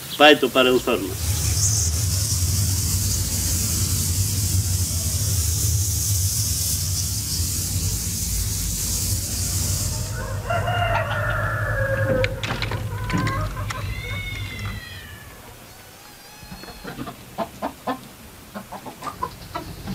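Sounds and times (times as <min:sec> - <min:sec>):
low hum: 0:00.0 - 0:16.0
high hiss: 0:00.0 - 0:19.9
rooster crowing: 0:07.7 - 0:17.2.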